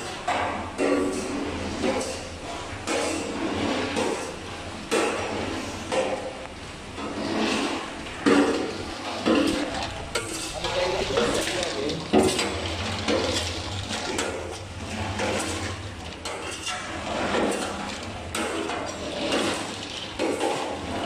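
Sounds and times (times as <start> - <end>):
pork rinds clattering in steel drum: 7.6 - 21.0.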